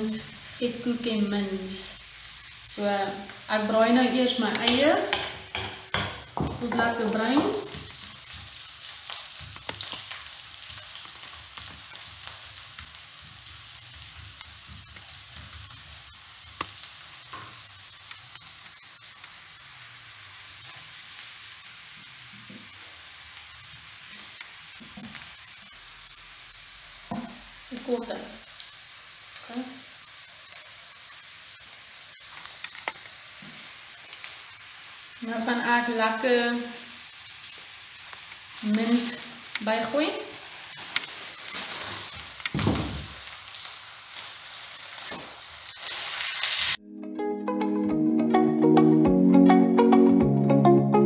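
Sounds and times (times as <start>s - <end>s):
onions sizzling in oil: 0.0s - 46.8s
brief loud knocks: 42.6s - 43.1s.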